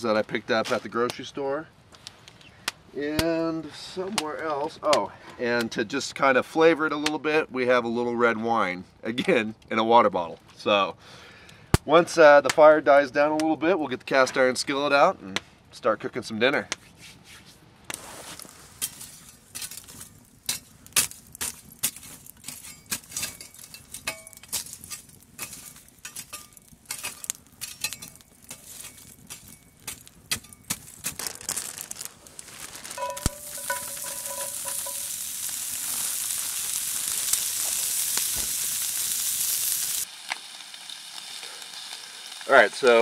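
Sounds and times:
campfire crackling and popping: 0.0 - 7.5, 11.1 - 14.2, 17.8 - 43.0
sausages sizzling in skillet: 18.0 - 43.0.

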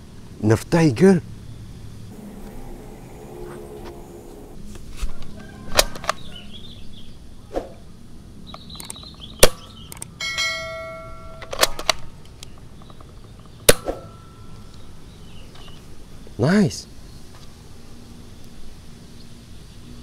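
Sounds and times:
bell-like chime: 10.2 - 11.4.

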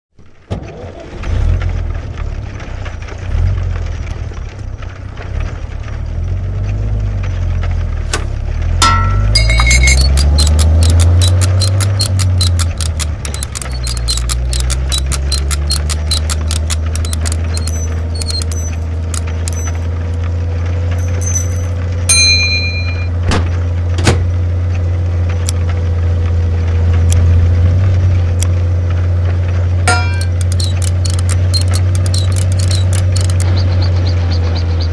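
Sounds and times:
bright metallic pings: 8.8 - 10.2, 21.0 - 23.1
metal parts rolling on wooden floor: 8.8 - 20.2, 21.0 - 21.9, 29.9 - 33.4
quick clicks and knocks: 8.8 - 20.2, 21.0 - 21.8, 29.9 - 33.4.

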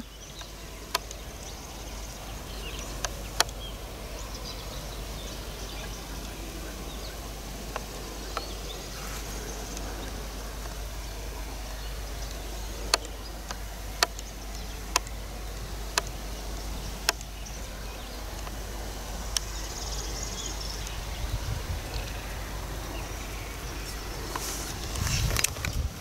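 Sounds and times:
sharp clicks: 0.0 - 2.0, 2.6 - 4.8, 5.7 - 19.8
insects buzzing and chirping: 0.0 - 26.0.

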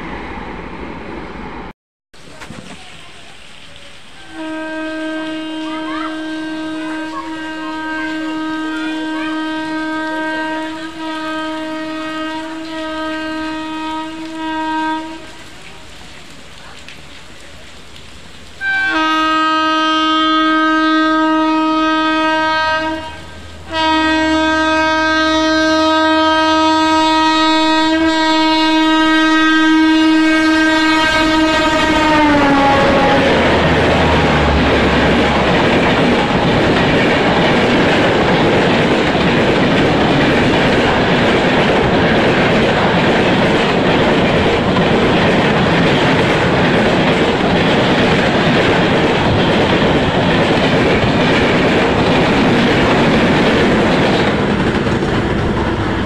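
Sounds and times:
train horn long blast: 4.2 - 15.5, 18.6 - 36.2
train wheels rushing on rails: 18.9 - 56.0.

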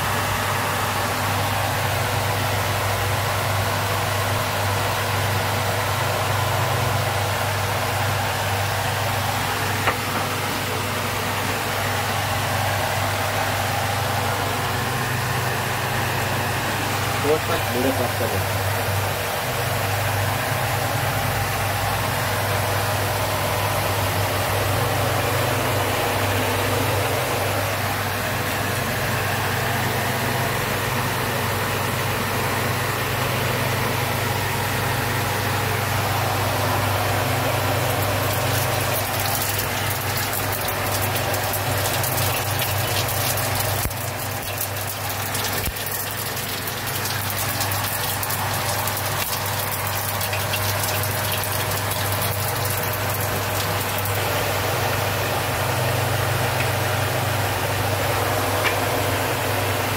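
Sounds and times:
stove burner hum and rush: 0.0 - 59.9
crackling sizzle: 37.8 - 54.6.

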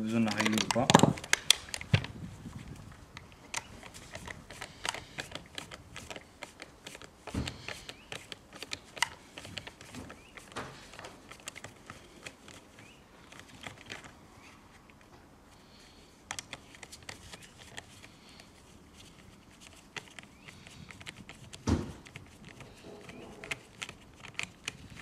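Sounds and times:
clicks and taps of chainsaw parts: 0.1 - 2.1.

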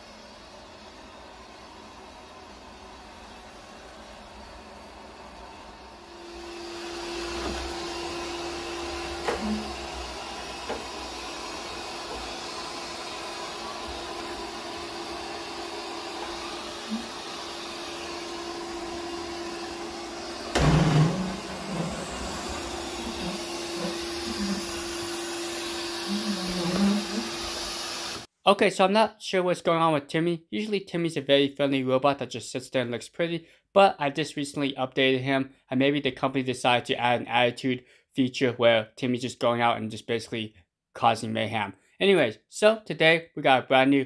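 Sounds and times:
robot vacuum whirring: 0.2 - 28.3.

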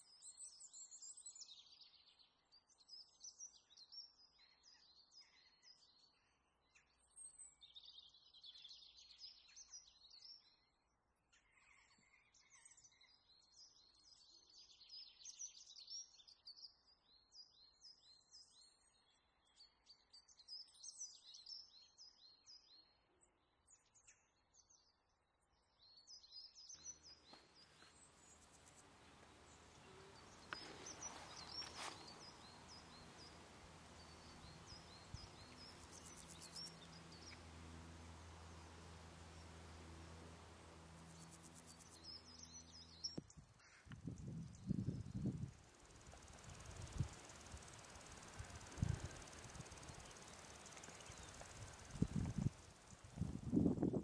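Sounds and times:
steady hiss: 27.4 - 43.1, 44.1 - 53.8
songbird warbling and trilling: 27.6 - 43.2.

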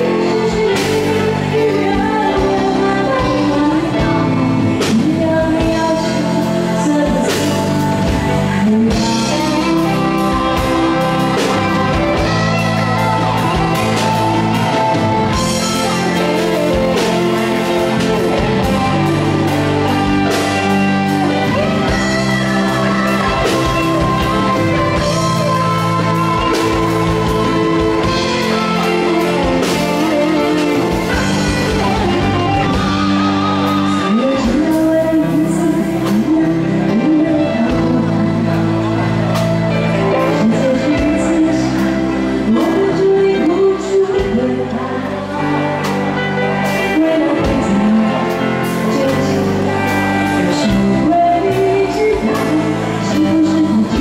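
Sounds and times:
band with guitar and drums: 0.0 - 54.0
woman singing pop-rock song: 0.0 - 54.0.

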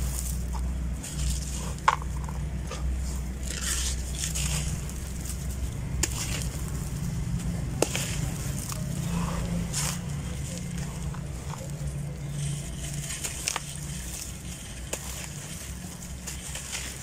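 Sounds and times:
hands crumbling gritty chunks: 0.0 - 17.0
low steady rumble: 0.0 - 17.0
sharp cracks of pieces snapping: 12.9 - 17.0.

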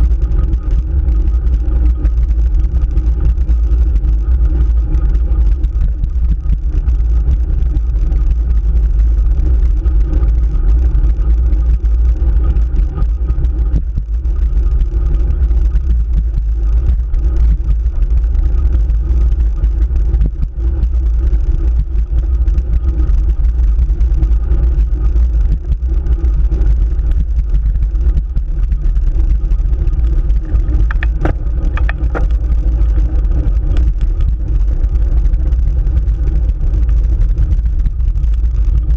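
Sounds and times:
bike tyre and road noise: 0.0 - 38.9
wind rumble on microphone: 0.0 - 38.9.

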